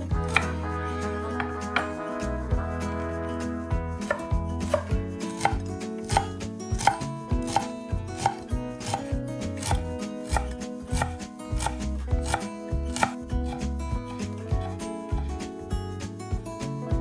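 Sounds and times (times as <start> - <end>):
knife chopping on wooden board: 4.1 - 14.2.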